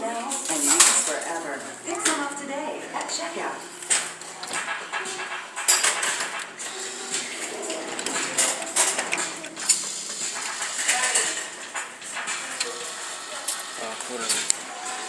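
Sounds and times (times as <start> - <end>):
claw machine clicking and clattering: 3.0 - 15.0.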